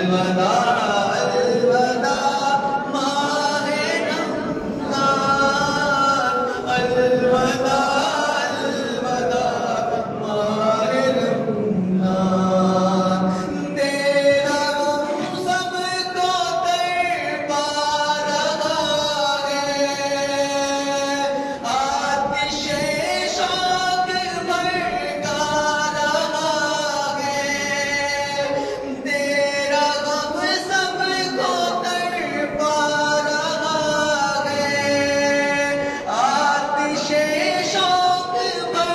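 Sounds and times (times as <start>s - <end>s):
man singing unaccompanied: 0.0s - 38.9s.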